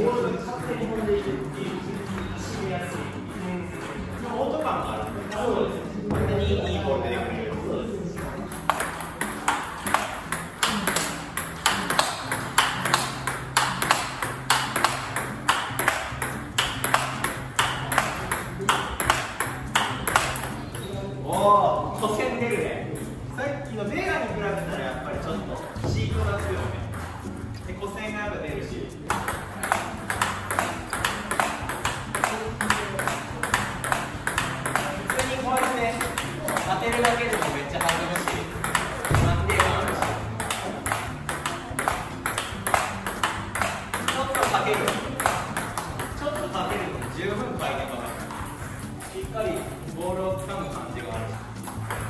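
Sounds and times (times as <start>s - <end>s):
table tennis ball clicks: 8.5s - 20.9s, 29.1s - 47.2s.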